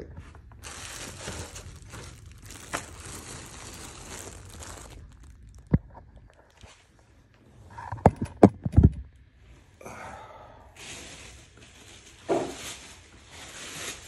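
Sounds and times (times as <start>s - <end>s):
plastic wrapping rustling: 0.2s - 7.0s, 10.8s - 14.0s.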